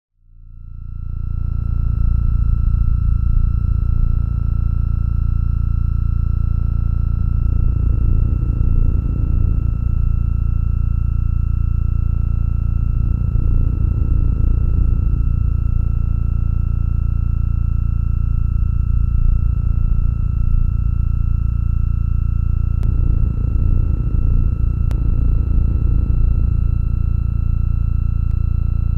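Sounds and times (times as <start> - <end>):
deep electronic drone: 0.4 - 28.9
rough low middle layer: 6.5 - 28.9.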